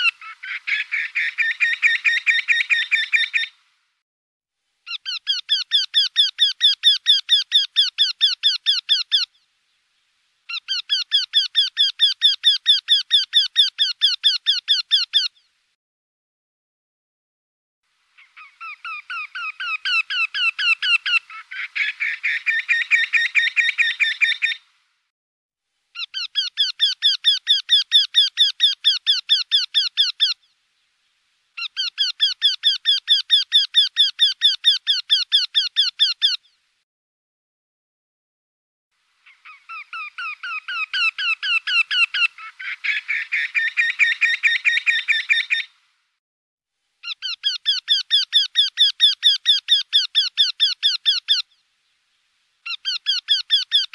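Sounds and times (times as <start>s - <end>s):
bird singing repeated notes: 0.0s - 3.5s, 18.2s - 24.6s, 31.6s - 36.5s, 39.2s - 45.7s, 47.0s - 51.6s, 52.6s - 53.9s.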